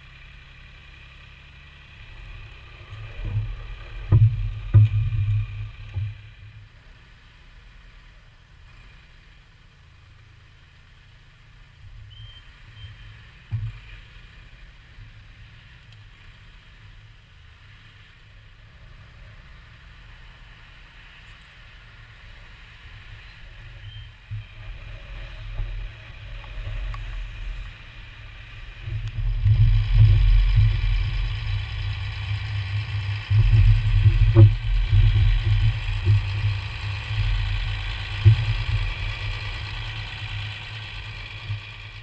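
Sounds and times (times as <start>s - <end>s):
forklift engine rumbling: 0.0s - 9.2s, 18.6s - 42.0s
short clunks: 3.2s - 6.2s.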